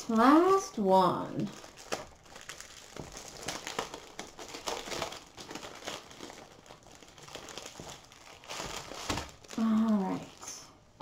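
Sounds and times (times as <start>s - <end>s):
plastic packaging crinkling: 0.0s - 10.7s.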